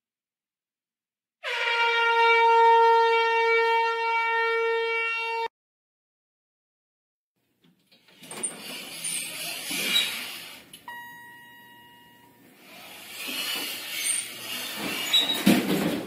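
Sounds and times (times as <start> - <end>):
elevator chime: 10.9 - 12.5.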